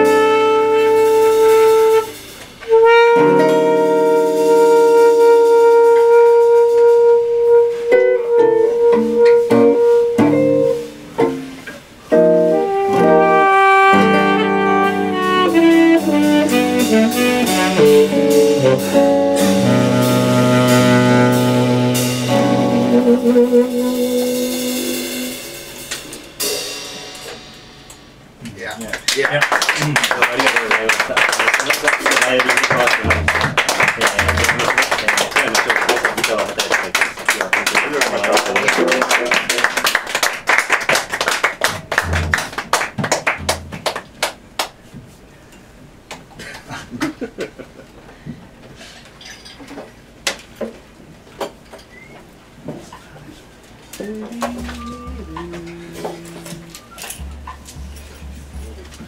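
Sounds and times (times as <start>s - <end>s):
live jazz band: 0.0s - 45.4s, 51.9s - 59.0s
cymbal crashes: 24.4s - 28.4s
audience applauding: 28.9s - 44.8s.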